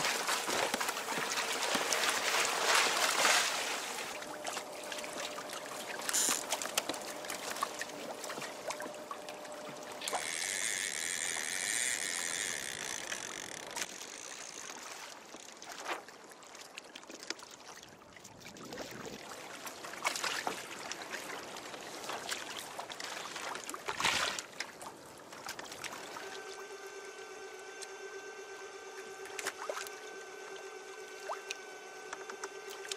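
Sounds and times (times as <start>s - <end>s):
water splashing against hull: 0.0s - 32.9s
high whine: 26.1s - 32.9s.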